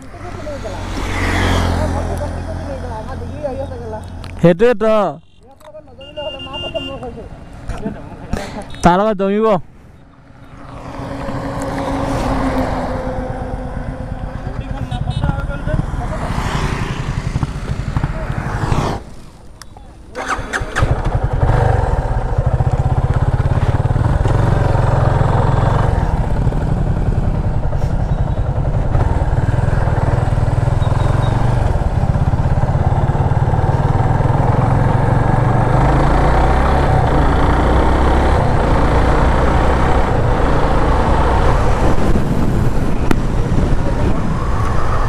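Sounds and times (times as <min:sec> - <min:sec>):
motorcycle engine running: 0:10.4 - 0:19.3, 0:20.2 - 0:44.1
wind rushing over microphone: 0:10.5 - 0:19.4, 0:39.8 - 0:45.0.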